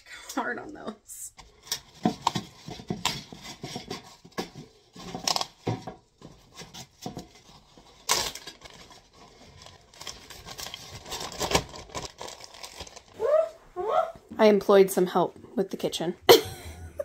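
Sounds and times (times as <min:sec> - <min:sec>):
packaging rustling: 0:01.4 - 0:13.3.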